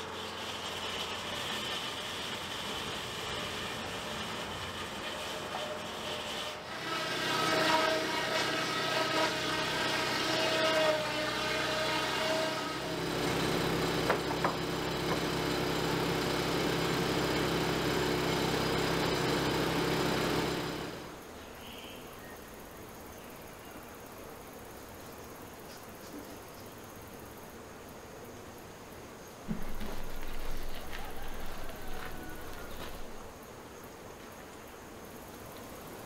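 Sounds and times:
mill machinery running: 0.0s - 10.3s, 11.0s - 21.2s, 29.5s - 33.3s
saw whining through log: 0.0s - 21.2s, 29.5s - 33.3s.

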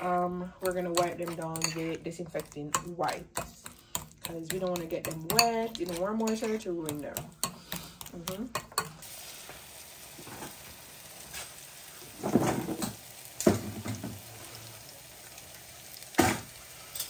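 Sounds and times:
fritters sizzling in oil: 7.4s - 17.0s.

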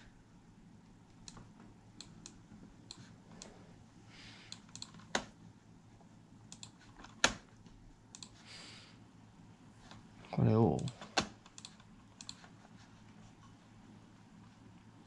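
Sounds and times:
computer mouse buttons clicking: 4.5s - 5.3s, 6.5s - 7.4s, 8.1s - 8.4s, 10.8s - 12.5s.

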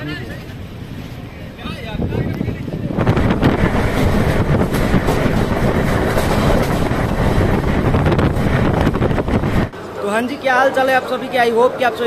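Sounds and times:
train wheels rumbling on rails: 0.0s - 9.9s
rail joint clacks: 2.0s - 9.7s.

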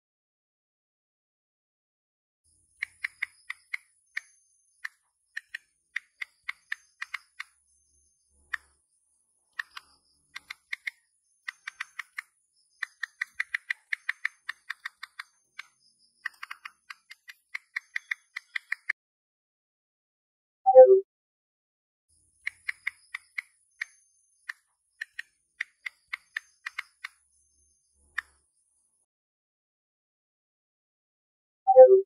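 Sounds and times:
phone keyboard clicks: 2.8s - 7.5s, 9.6s - 18.9s, 22.4s - 27.2s.

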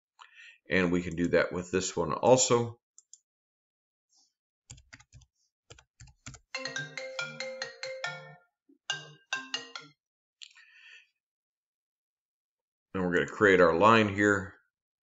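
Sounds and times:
computer keyboard keystrokes: 4.7s - 6.5s
electronic ringtone melody: 6.5s - 9.9s.

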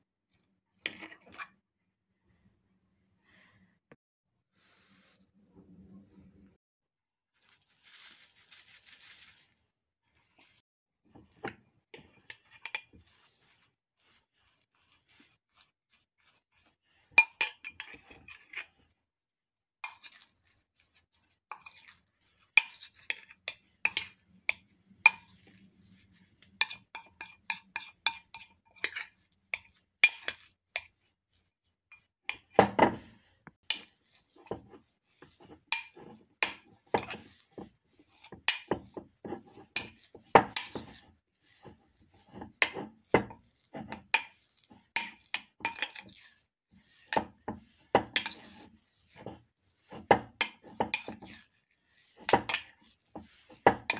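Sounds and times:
metal spoon scraping a bowl: 0.4s - 1.6s, 11.2s - 18.8s, 19.8s - 32.6s, 33.6s - 53.9s.

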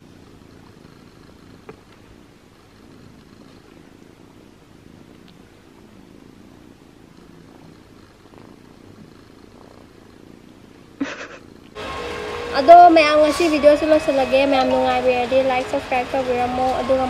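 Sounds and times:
kitten purring: 0.0s - 11.8s.

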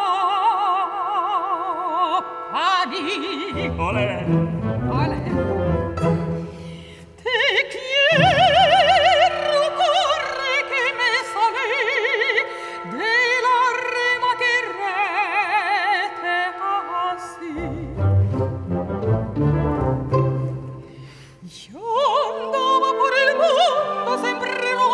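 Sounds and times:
operatic soprano singing: 0.0s - 6.3s, 7.0s - 18.5s, 21.4s - 24.9s
sustained orchestral chords: 3.5s - 7.0s, 17.5s - 21.2s
low strings: 3.6s - 6.9s, 17.6s - 21.1s.

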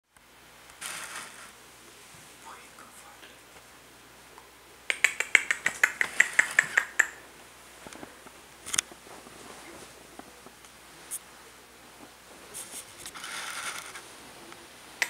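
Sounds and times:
person making sharp clicks: 4.9s - 7.2s.

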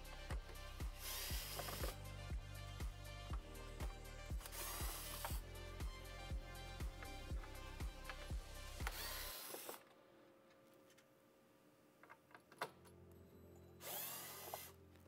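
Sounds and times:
background music with steady beat: 0.0s - 9.7s
electric screwdriver whirring: 1.0s - 2.0s, 4.4s - 5.4s, 8.8s - 9.8s, 13.8s - 14.8s.

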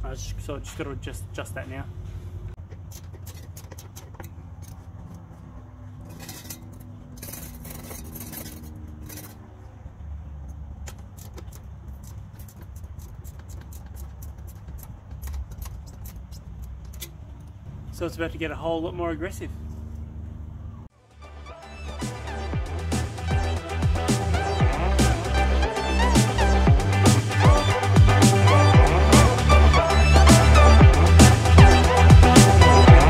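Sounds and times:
rough metal scraping: 2.0s - 17.7s
hand tools clicking on metal: 2.6s - 9.7s, 10.4s - 17.7s.

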